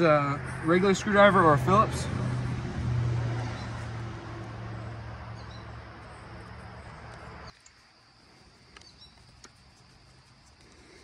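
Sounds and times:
low engine hum: 0.0s - 7.5s.

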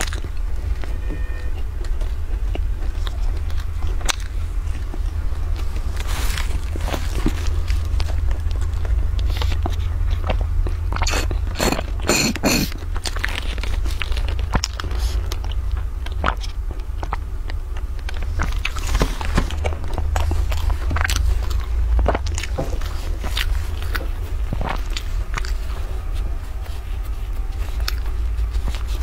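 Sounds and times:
steady low hum: 0.0s - 29.0s
mouth clicks: 11.0s - 12.8s
sipping and slurping through straws: 11.0s - 12.8s.

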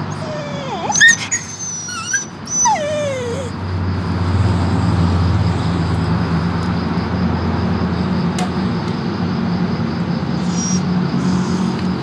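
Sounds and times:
dog whining: 0.0s - 3.6s, 10.4s - 12.0s.

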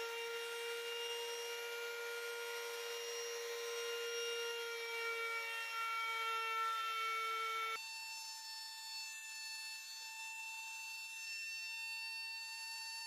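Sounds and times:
trimmer router high whine: 0.0s - 8.8s.

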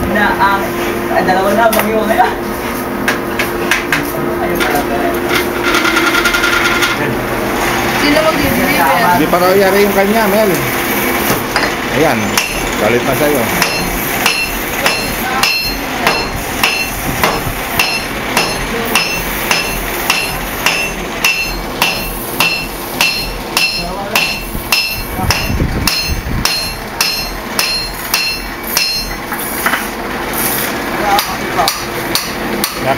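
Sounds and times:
hammer striking anvil: 11.5s - 12.7s, 13.6s - 29.8s, 31.1s - 32.8s.

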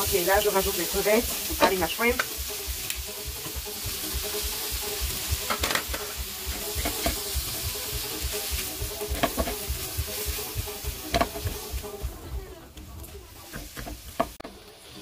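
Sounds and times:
food sizzling in a pan: 0.0s - 15.0s
spatula knocking against pan: 11.1s - 11.6s.

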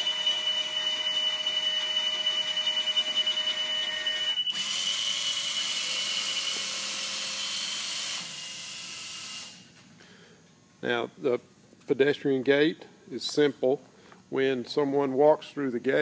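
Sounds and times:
high warning alarm tone: 0.0s - 6.9s.

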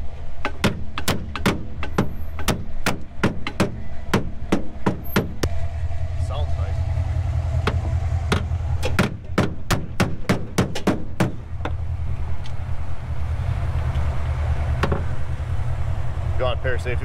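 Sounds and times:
steady low rumble: 4.8s - 17.0s.

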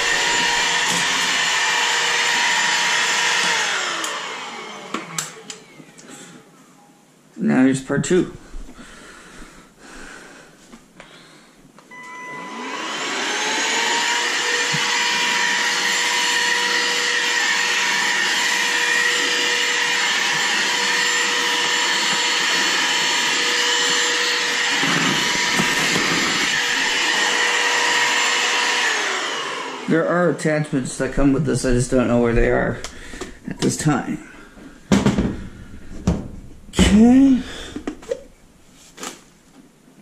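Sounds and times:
vacuum motor whine: 0.0s - 6.1s, 11.9s - 30.0s.

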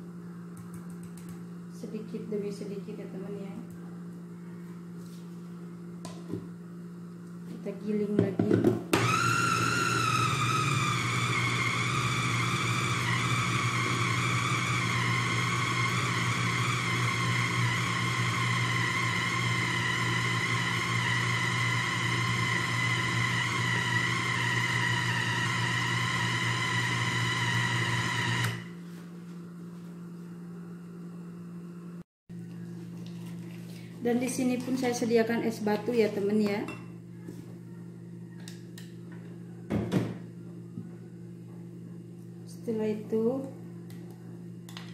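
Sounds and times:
food chopper motor whine: 8.9s - 28.8s.

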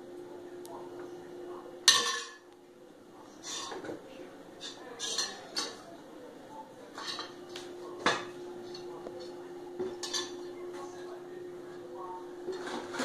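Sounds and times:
faint steady hum: 0.0s - 13.0s
dishes clattering in metal sink: 1.8s - 2.5s, 3.4s - 4.0s, 4.6s - 5.8s, 6.9s - 10.6s, 12.4s - 13.0s.

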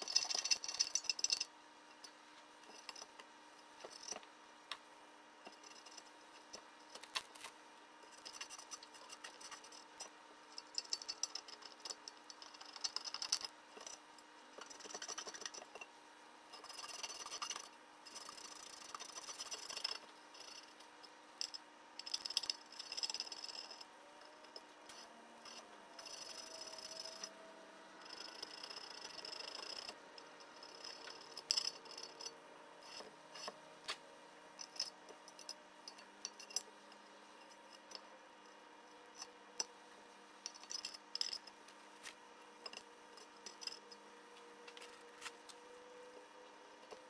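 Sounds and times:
faint steady hum: 0.0s - 47.0s
hand tool scraping metal: 28.1s - 33.6s.

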